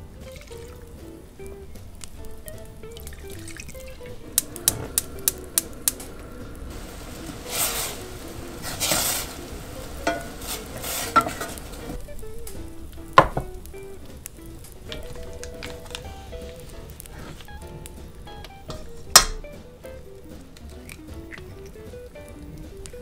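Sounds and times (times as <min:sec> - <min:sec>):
background music: 0:00.0 - 0:23.0
sauce simmering in a saucepan: 0:00.0 - 0:23.0
wooden spoon stirring: 0:01.4 - 0:19.4
sharp ticks: 0:03.8 - 0:06.3
spoon knocking against pan: 0:10.0 - 0:11.6, 0:12.6 - 0:14.3, 0:18.4 - 0:19.6.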